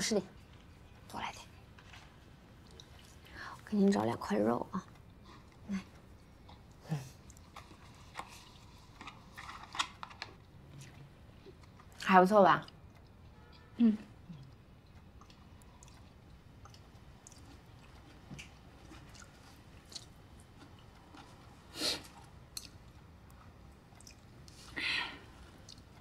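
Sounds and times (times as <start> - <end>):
quiet chewing: 0.3 - 3.5, 4.7 - 26.0
breathy sounds: 24.5 - 25.6.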